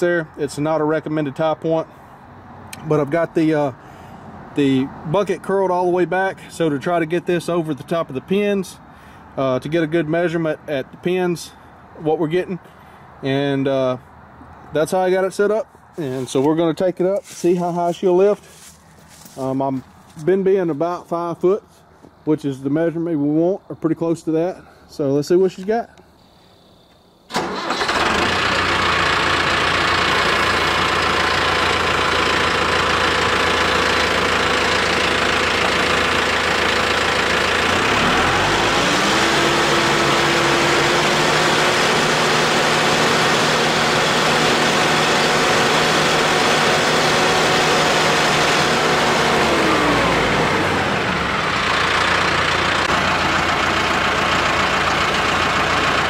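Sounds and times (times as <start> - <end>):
tractor diesel engine running: 14.9 - 23.8, 26.2 - 56.0.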